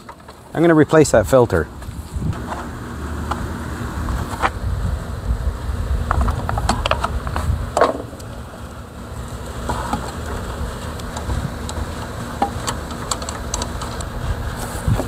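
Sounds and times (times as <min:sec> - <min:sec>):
mower engine running: 0:00.0 - 0:15.0
clicks and knocks of parts handled: 0:11.0 - 0:14.1.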